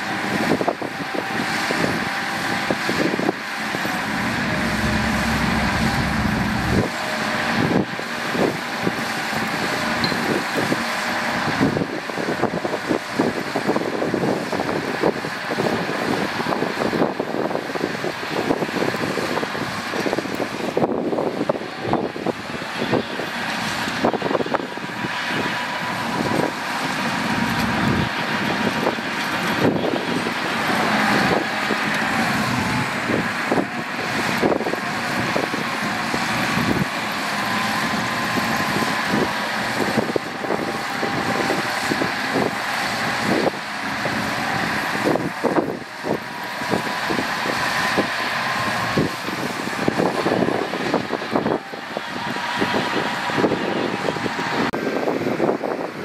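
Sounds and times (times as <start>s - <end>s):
diesel truck engine running: 0.0s - 55.6s.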